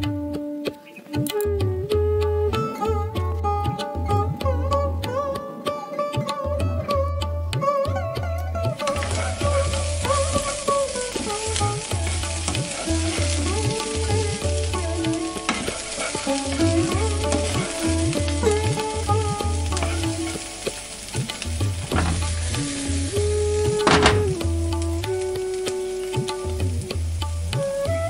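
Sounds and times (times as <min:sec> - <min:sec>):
background music with beat: 0:00.0 - 0:28.0
fritters sizzling in hot oil: 0:08.8 - 0:27.9.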